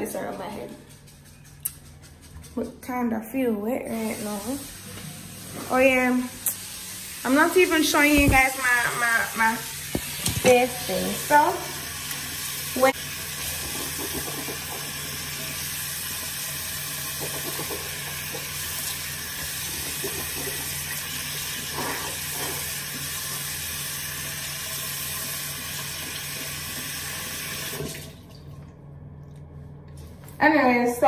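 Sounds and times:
sink tap running: 0:03.8 - 0:28.4.

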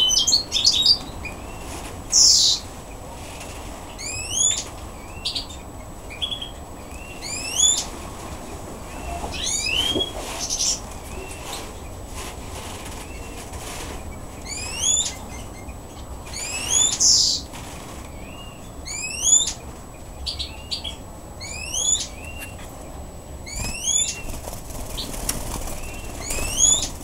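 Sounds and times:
bird chirps: 0:14.1 - 0:17.4, 0:18.2 - 0:22.8, 0:23.5 - 0:27.0
wing flutter: 0:23.5 - 0:27.0.

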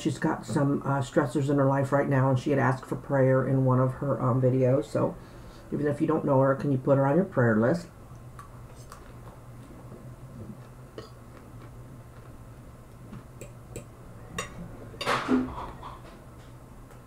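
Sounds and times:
steady low hum: 0:00.0 - 0:17.0
quiet chewing: 0:08.1 - 0:14.5.

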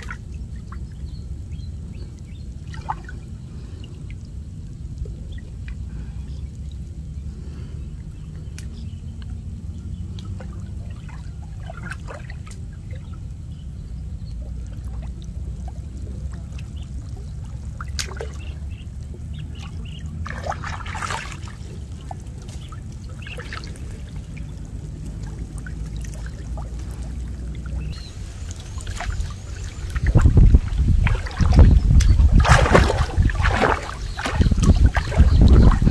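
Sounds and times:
small splashes: 0:00.0 - 0:01.2, 0:02.0 - 0:06.8, 0:07.4 - 0:35.9
low steady rumble: 0:00.0 - 0:35.9
water sloshing and dripping: 0:00.0 - 0:35.9.

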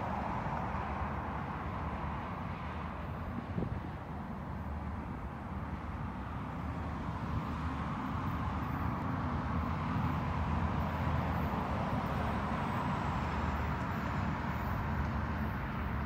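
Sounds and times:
wind noise: 0:03.2 - 0:04.2.

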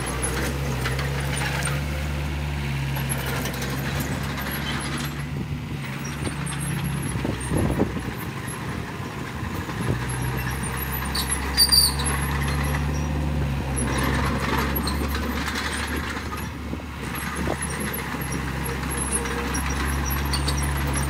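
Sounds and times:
bulldozer diesel engine running: 0:00.0 - 0:21.0
high squeals: 0:10.4 - 0:13.1.

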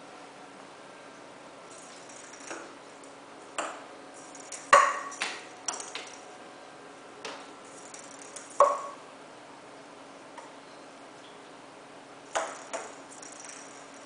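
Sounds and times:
plastic ball knocking on wooden floor: 0:04.7 - 0:06.2.

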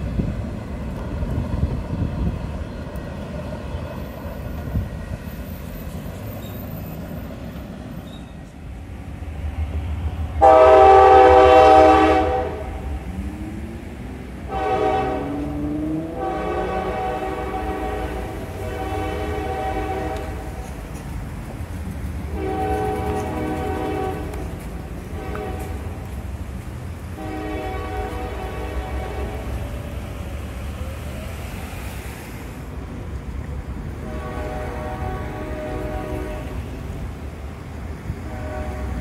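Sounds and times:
train rumbling: 0:00.0 - 0:39.0
locomotive air horn blasts: 0:10.4 - 0:13.0, 0:14.4 - 0:20.6, 0:22.2 - 0:26.2, 0:27.1 - 0:30.0, 0:34.0 - 0:36.8, 0:38.1 - 0:39.0.

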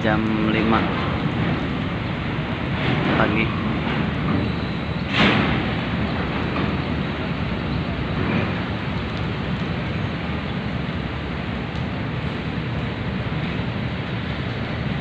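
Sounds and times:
ferry engines rumbling: 0:00.0 - 0:15.0.

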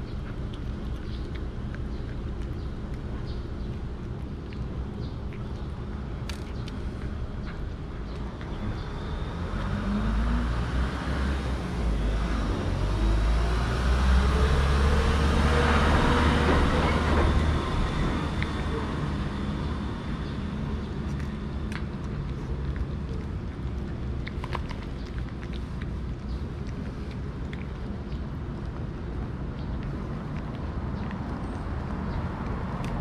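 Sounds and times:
vehicle passing rumble: 0:00.0 - 0:33.0.

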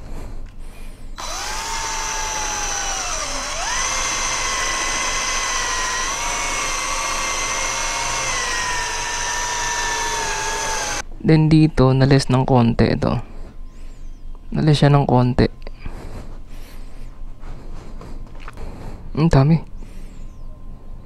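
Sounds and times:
drill motor whine: 0:01.2 - 0:11.0.

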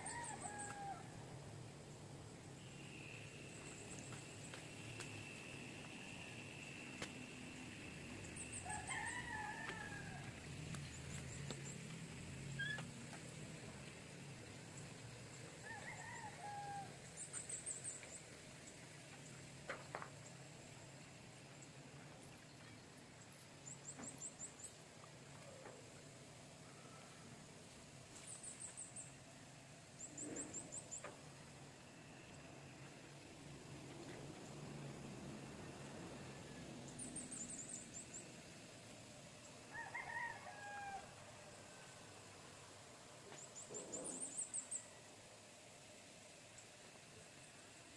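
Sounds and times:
faint animal call: 0:12.5 - 0:13.0.

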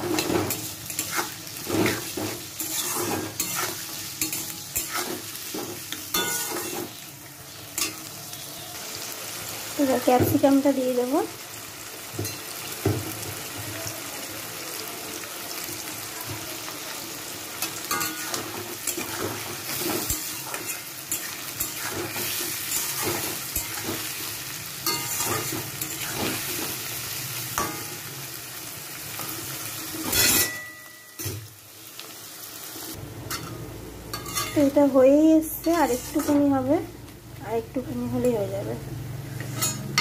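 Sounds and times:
metal spatula scraping and stirring: 0:00.0 - 0:07.0, 0:17.6 - 0:26.9, 0:30.0 - 0:30.7, 0:34.1 - 0:34.8, 0:35.5 - 0:36.7, 0:39.4 - 0:40.0
vegetables sizzling in hot oil: 0:00.0 - 0:40.0.

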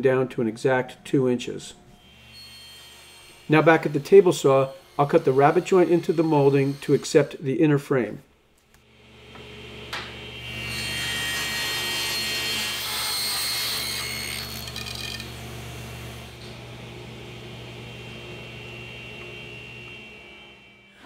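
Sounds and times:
table saw motor humming: 0:01.8 - 0:07.4, 0:08.9 - 0:21.0
saw cutting wood: 0:02.0 - 0:07.4, 0:09.4 - 0:16.6.

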